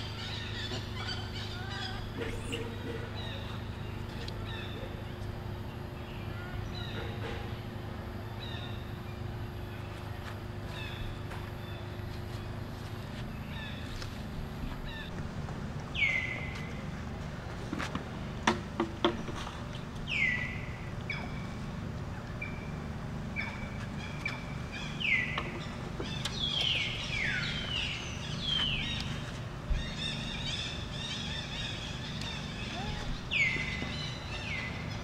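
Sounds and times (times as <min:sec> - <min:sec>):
low outdoor rumble: 0:00.0 - 0:35.0.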